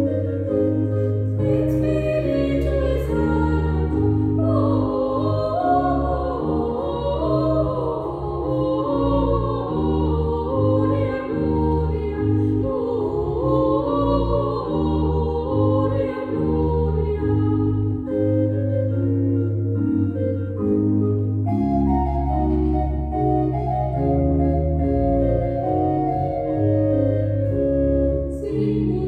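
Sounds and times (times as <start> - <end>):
pipe organ playing: 0.0 - 29.0
women singing a duet: 1.4 - 18.2, 28.3 - 29.0.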